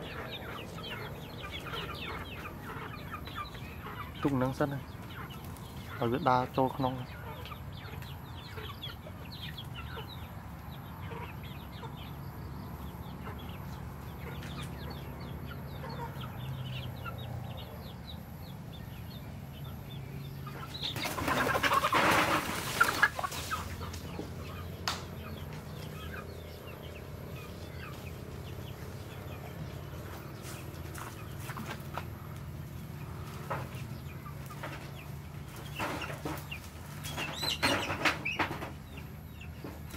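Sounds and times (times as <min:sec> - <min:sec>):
chickens clucking: 0:00.0 - 0:39.9
wings flapping and scuffling: 0:20.6 - 0:26.2, 0:29.8 - 0:39.9.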